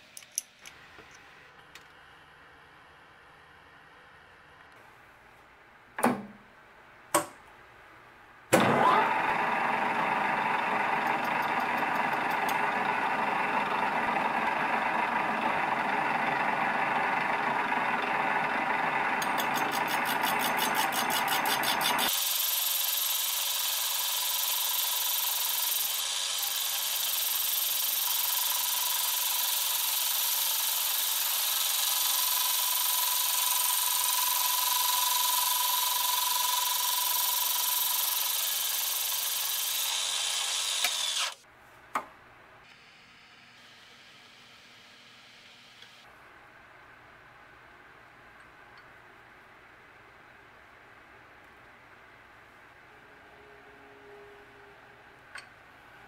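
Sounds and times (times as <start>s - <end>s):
lathe spindle humming: 8.7s - 41.4s
rapid even ticking of cutting tool: 19.2s - 41.4s.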